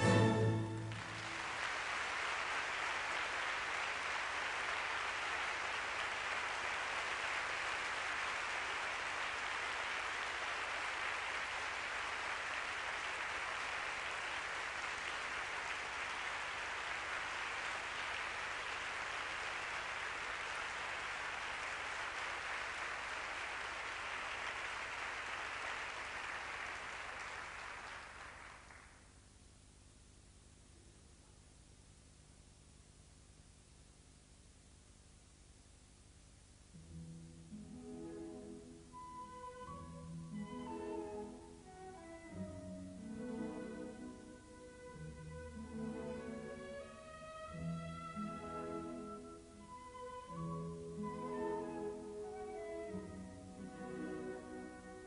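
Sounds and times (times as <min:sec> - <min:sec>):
audience applauding: 0:00.0 - 0:29.1.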